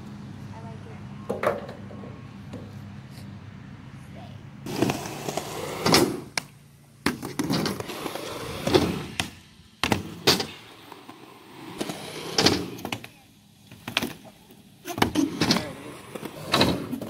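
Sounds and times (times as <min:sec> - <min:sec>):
skateboard wheels rolling on concrete: 0:00.0 - 0:17.0
skateboard clacking on ground: 0:04.7 - 0:17.0.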